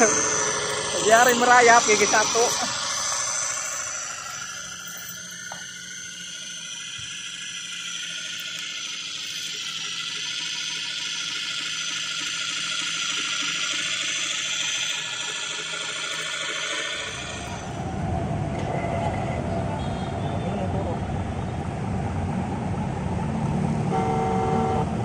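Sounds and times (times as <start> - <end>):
toy truck motor whining: 0.0 - 19.6.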